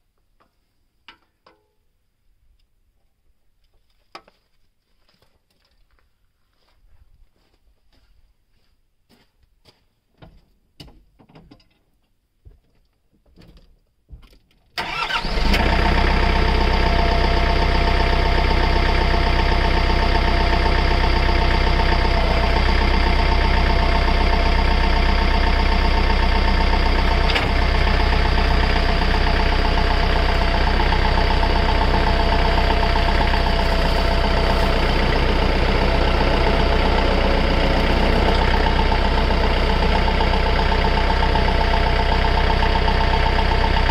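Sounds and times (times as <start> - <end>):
diesel engine starting and idling: 14.8 - 43.9.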